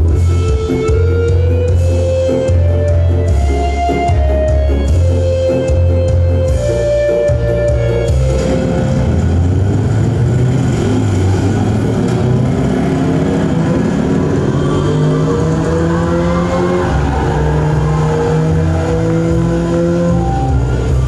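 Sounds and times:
car engine revving over loudspeakers: 8.0s - 21.0s.

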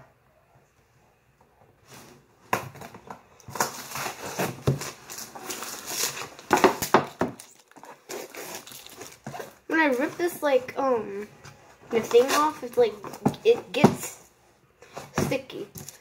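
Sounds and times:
tape and cardboard tearing: 3.5s - 10.1s, 11.9s - 14.0s.

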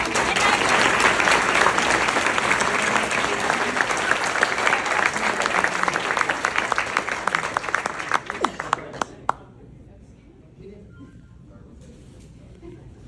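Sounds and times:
roomful of people applauding: 0.0s - 9.4s.

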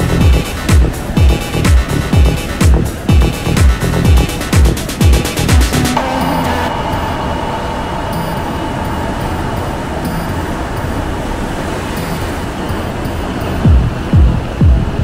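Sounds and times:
deep kick drum: 0.0s - 6.7s, 13.6s - 15.0s
electronic background music: 0.0s - 15.0s.

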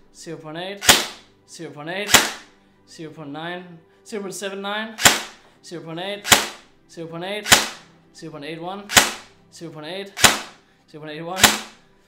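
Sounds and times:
airsoft gun shots cracking: 0.8s - 1.2s, 2.1s - 2.5s, 5.0s - 5.4s, 6.2s - 6.7s, 7.4s - 7.9s, 8.9s - 9.3s, 10.2s - 10.6s, 11.4s - 11.8s.

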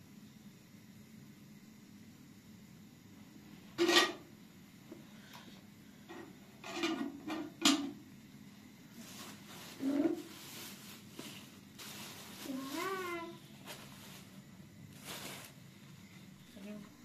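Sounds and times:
crackly rustles and scrapes: 6.1s - 7.5s, 8.9s - 16.8s.

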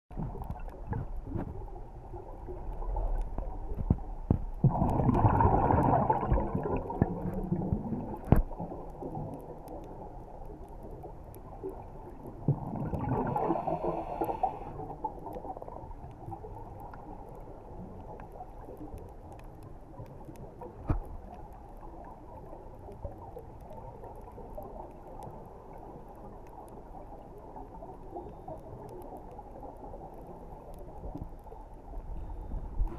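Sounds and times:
muffled underwater rumble: 0.1s - 32.9s
rushing burst of bubbles: 4.6s - 8.8s, 12.4s - 14.4s.

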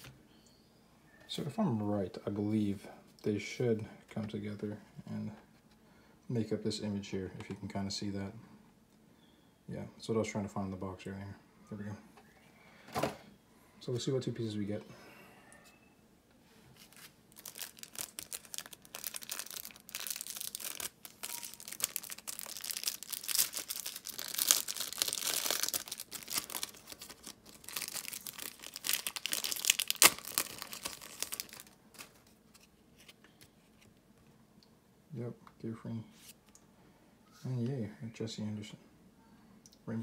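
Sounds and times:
foil wrapper tearing and crinkling: 16.8s - 32.3s.

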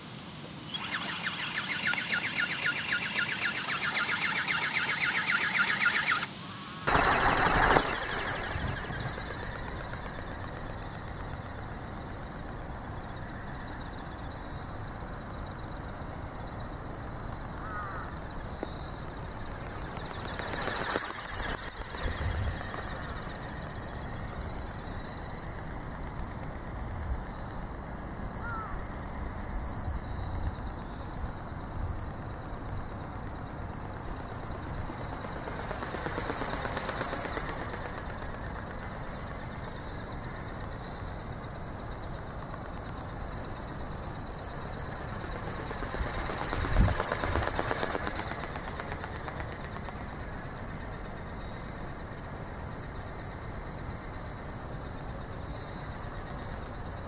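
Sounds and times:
model motor whining: 6.9s - 13.5s, 17.7s - 25.8s.

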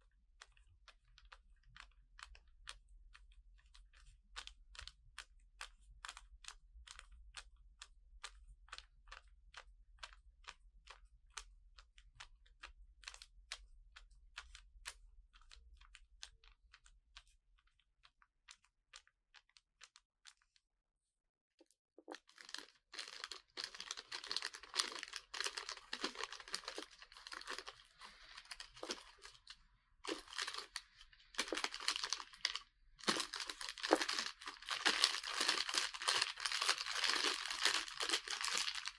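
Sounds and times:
plastic bag of bolts crinkling: 22.1s - 38.9s.

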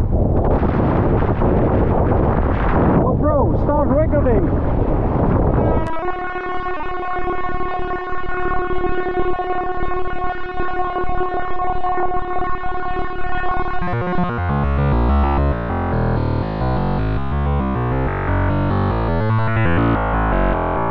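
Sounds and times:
held electronic tone: 13.6s - 20.9s
beat with heavy bass line: 13.8s - 19.9s.

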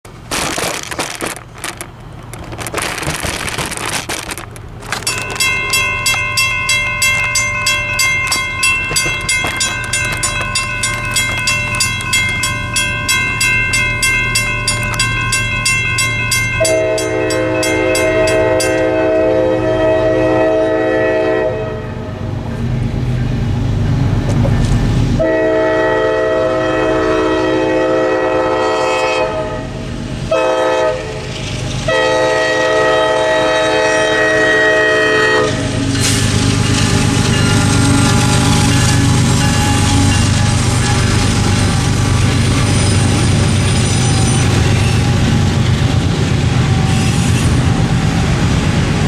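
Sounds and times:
railroad crossing bell ringing: 4.8s - 19.6s, 33.6s - 45.4s
locomotive air horn: 16.6s - 22.2s, 25.2s - 31.2s, 31.8s - 41.8s.

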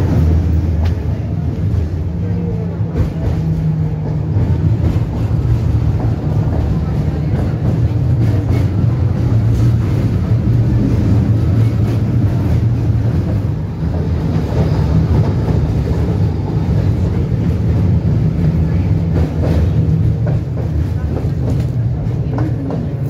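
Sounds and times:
tram rumbling: 0.0s - 23.0s.

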